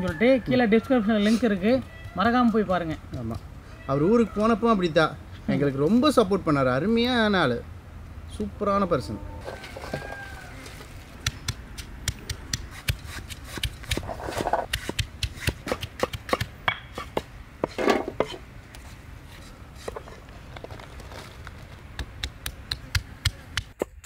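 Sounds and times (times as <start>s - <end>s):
knife chopping on wooden block: 11.2s - 18.4s.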